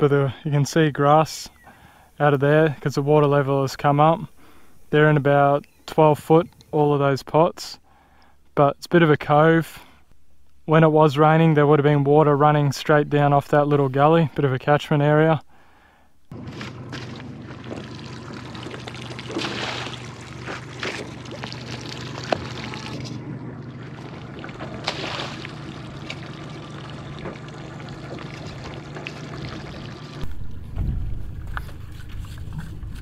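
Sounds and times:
steady low hum: 15.4 - 33.0
water pouring and trickling: 16.4 - 30.6
pots splashing into water: 16.7 - 23.0, 23.8 - 30.2.

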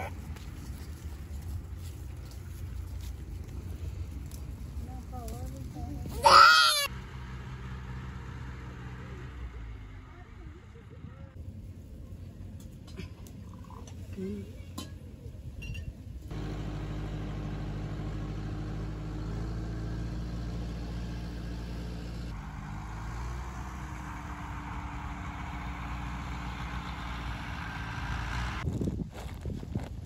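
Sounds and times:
tractor diesel engine running: 0.0 - 12.8, 16.2 - 28.6.

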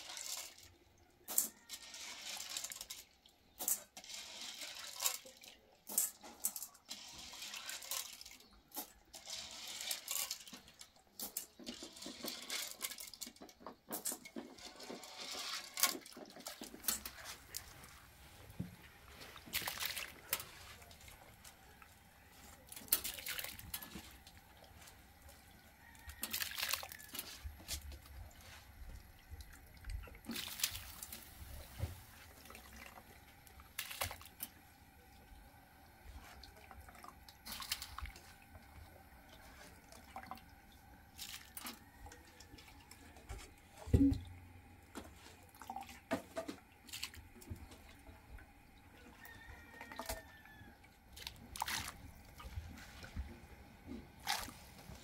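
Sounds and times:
small splashes and clicks: 0.0 - 18.0, 18.8 - 53.3
grains rubbed in water by hand: 0.0 - 35.3, 54.2 - 55.0
water sloshing and dripping: 0.0 - 55.0.

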